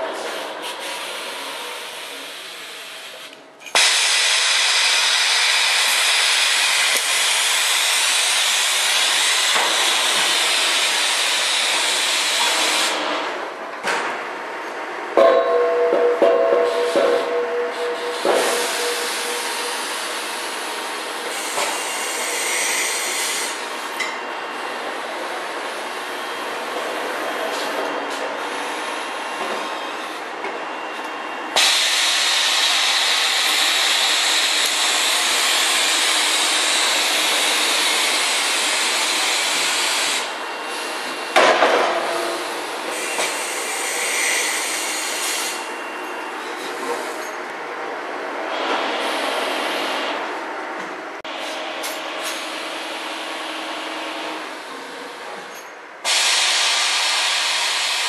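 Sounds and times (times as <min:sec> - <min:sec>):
compressed air hissing: 0:00.6 - 0:13.0, 0:16.9 - 0:23.9, 0:31.6 - 0:41.3, 0:42.4 - 0:45.7, 0:56.1 - 0:58.0
loud high-pitched hiss: 0:00.7 - 0:13.0, 0:16.9 - 0:23.9, 0:31.6 - 0:41.4, 0:42.4 - 0:45.8, 0:56.0 - 0:58.0
sharp metallic knock: 0:15.2 - 0:19.8.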